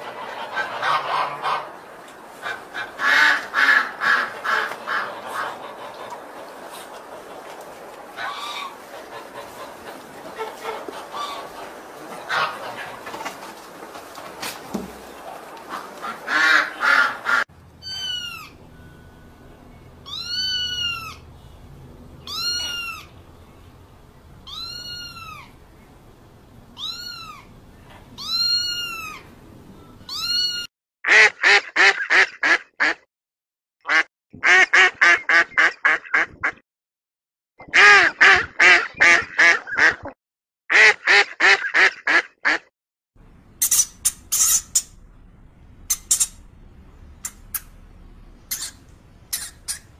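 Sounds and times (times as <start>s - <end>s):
duck quacking: 0.0s - 1.8s, 2.4s - 7.5s, 8.1s - 13.5s, 15.2s - 18.5s, 31.1s - 33.0s, 33.9s - 36.6s, 37.6s - 42.7s, 48.5s - 49.9s
water bird calling: 0.0s - 13.2s, 14.8s - 18.9s, 20.0s - 21.3s, 22.2s - 23.7s, 45.9s - 46.5s, 48.4s - 49.9s
guinea pig squeaking: 17.8s - 18.6s, 20.0s - 21.2s, 22.2s - 23.2s, 26.8s - 27.5s, 28.2s - 29.3s, 43.6s - 45.0s, 45.9s - 46.4s, 48.5s - 49.9s.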